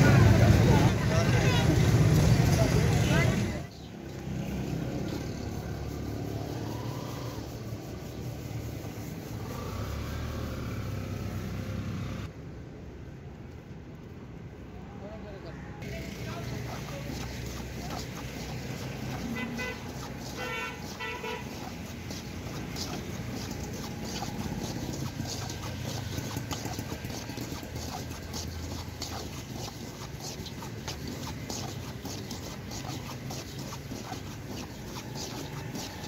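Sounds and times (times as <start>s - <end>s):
low street hum: 0.0s - 36.0s
metal scoop scraping sand in wok: 15.8s - 36.0s
horn toot: 19.1s - 22.2s.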